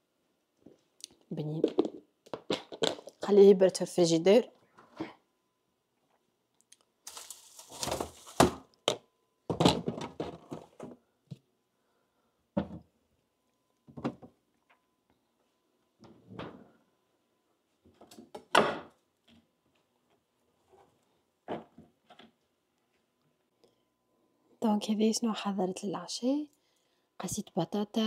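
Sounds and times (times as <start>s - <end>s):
knocks of items set down: 7.8s - 11.0s, 12.6s - 12.9s
refrigerator door opening and closing: 9.5s - 10.9s.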